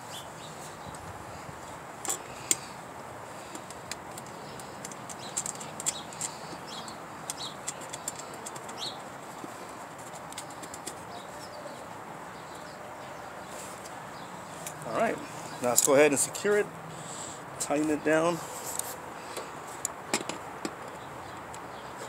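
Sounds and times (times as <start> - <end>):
steady outdoor hiss: 0.0 - 22.0
bird chirps: 0.1 - 1.0, 4.3 - 9.1
nut clicking onto screw: 3.6 - 8.9.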